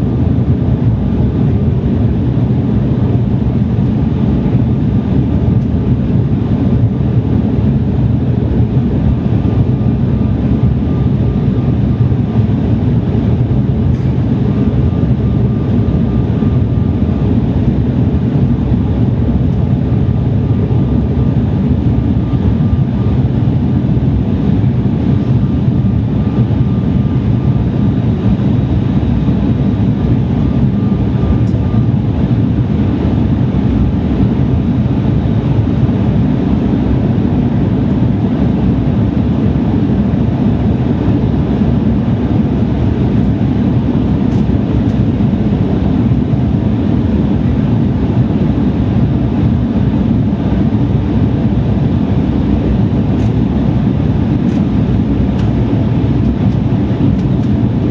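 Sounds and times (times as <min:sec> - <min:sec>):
airliner cabin roar: 0:00.0 - 0:57.9.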